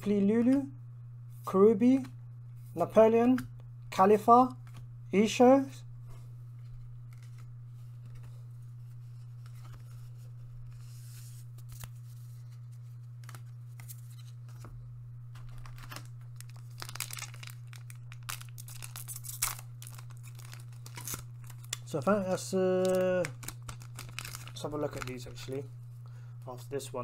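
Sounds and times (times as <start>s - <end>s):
steady low hum: 0.0s - 27.0s
foil wrapper crinkling and tearing: 15.4s - 25.6s.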